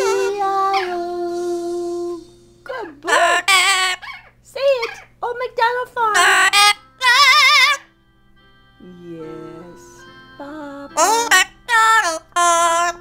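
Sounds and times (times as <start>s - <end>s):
parrot singing high vibrato notes: 0.0s - 1.2s, 2.5s - 5.1s, 6.1s - 8.0s, 11.0s - 13.0s.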